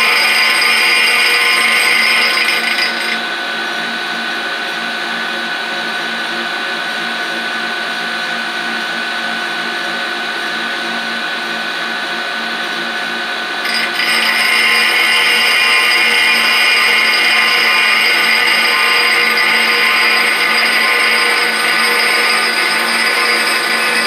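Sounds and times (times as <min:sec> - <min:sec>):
grinder motor whine: 0:00.0 - 0:04.1, 0:12.0 - 0:24.0.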